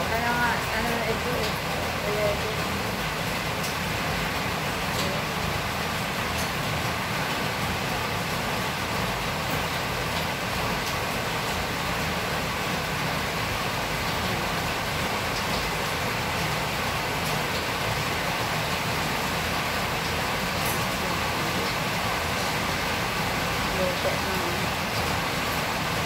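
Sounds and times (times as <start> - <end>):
heavy rain: 0.0 - 26.0.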